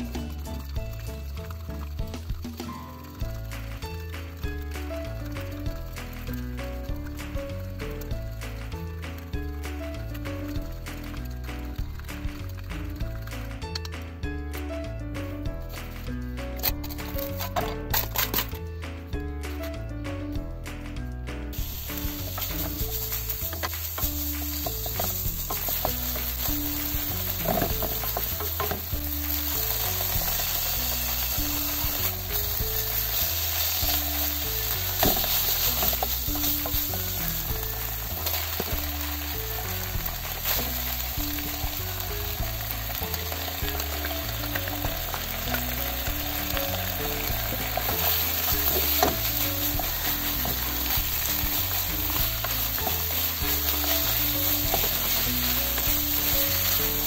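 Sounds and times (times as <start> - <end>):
meat sizzling in a frying pan: 0.0 - 13.4, 21.5 - 57.0
wooden spatula scraping and stirring: 21.6 - 57.0.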